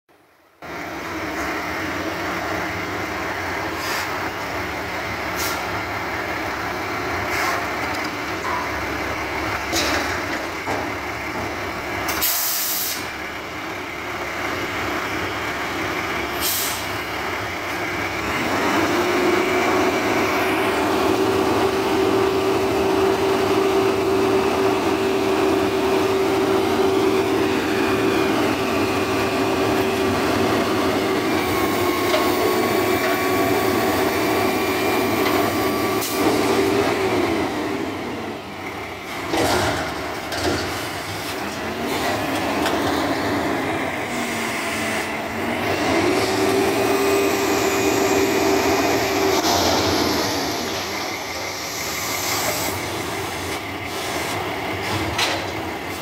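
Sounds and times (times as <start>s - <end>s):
garbage truck engine running: 0.2s - 56.0s
air brake hisses: 3.7s - 4.2s, 5.3s - 5.8s, 7.3s - 7.7s, 12.1s - 13.1s, 16.4s - 17.0s
steady hydraulic whine: 7.2s - 39.1s, 40.0s - 56.0s.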